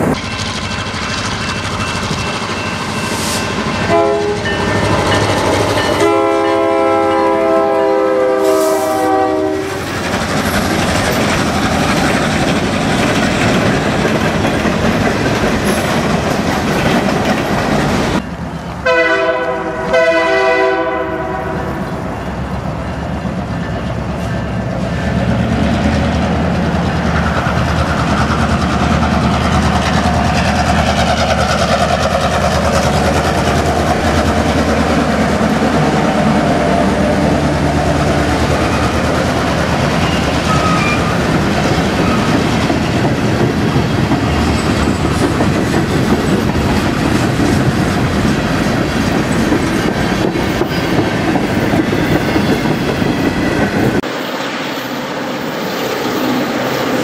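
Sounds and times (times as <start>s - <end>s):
diesel locomotive engine: 0.0s - 57.0s
freight train rumbling past: 0.0s - 57.0s
locomotive horn blasts: 3.8s - 9.8s, 18.8s - 21.9s.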